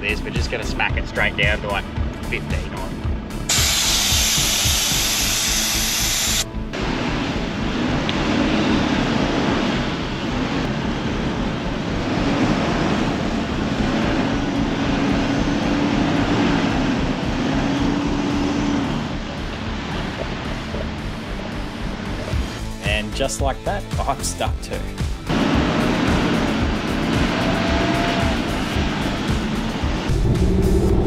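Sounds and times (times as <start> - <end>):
background music: 0.0 - 31.0
air hissing out of tyre valve: 3.5 - 6.5.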